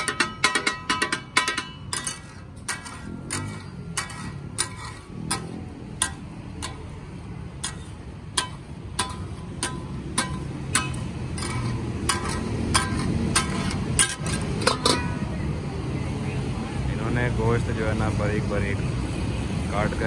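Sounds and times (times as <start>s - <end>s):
spatulas clacking on steel griddle: 0.0s - 15.3s.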